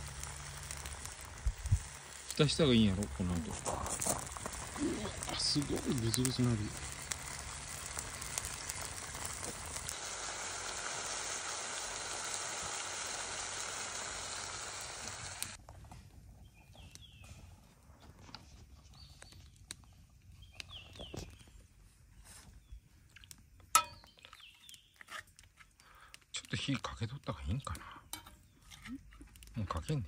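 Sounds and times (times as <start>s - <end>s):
stew bubbling in a pot: 0.0s - 17.3s
fire crackling: 0.0s - 30.0s.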